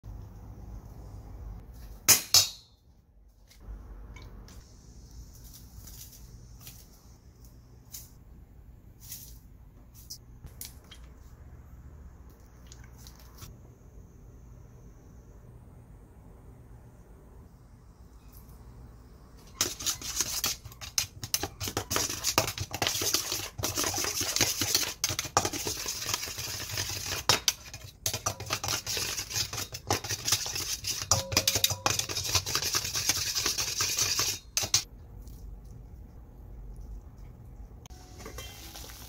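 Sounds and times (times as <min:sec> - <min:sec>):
metal spoons scraping metal bowl: 0:19.4 - 0:34.9.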